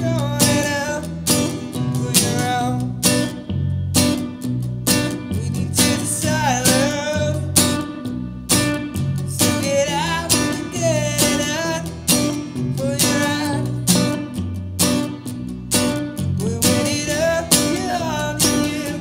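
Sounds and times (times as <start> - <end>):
person singing: 0.0 - 2.9, 5.3 - 7.6, 9.4 - 12.1, 12.7 - 14.1, 16.4 - 19.0
band playing guitars bass drums: 0.0 - 19.0.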